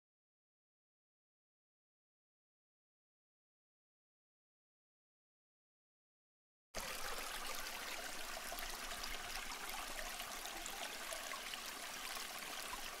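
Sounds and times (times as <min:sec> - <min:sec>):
rushing water-like noise: 0:06.8 - 0:13.0.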